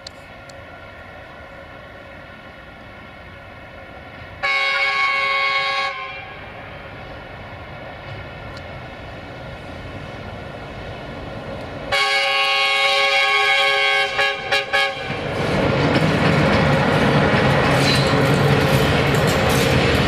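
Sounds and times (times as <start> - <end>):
rumble of approaching train: 0.0 - 20.0
locomotive horn blasts: 4.4 - 6.5, 11.9 - 15.2.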